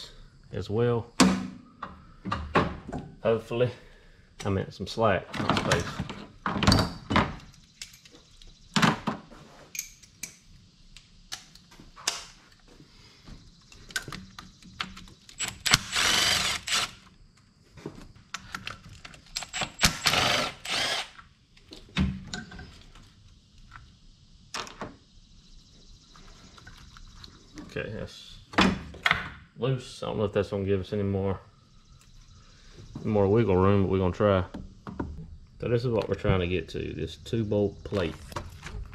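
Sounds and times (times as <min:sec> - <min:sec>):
tools and parts clicking: 0:06.5 - 0:08.6, 0:09.7 - 0:12.6, 0:18.3 - 0:22.7
electric ratchet running: 0:15.4 - 0:17.0, 0:19.4 - 0:21.2.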